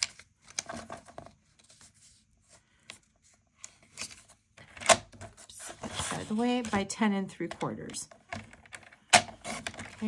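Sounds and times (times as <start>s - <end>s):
cardstock scraping and rustling: 5.2s - 7.0s, 9.2s - 10.0s.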